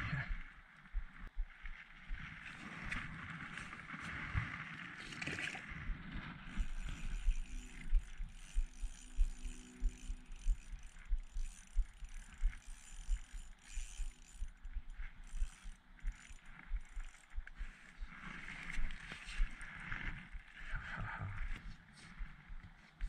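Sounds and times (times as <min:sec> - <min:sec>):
fishing reel clicking: 0:06.5 - 0:17.9.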